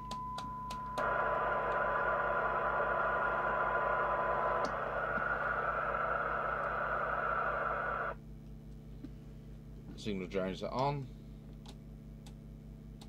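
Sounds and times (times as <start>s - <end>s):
radio receiver hiss: 1.0s - 8.2s.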